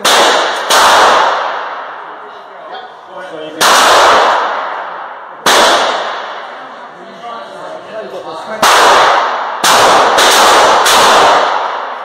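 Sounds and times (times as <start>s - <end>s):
handgun shots echoing: 0.0s - 1.8s.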